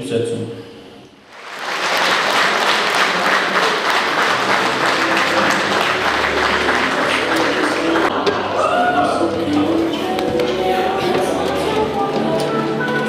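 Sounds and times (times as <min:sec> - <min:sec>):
large audience applauding: 0:01.2 - 0:09.2.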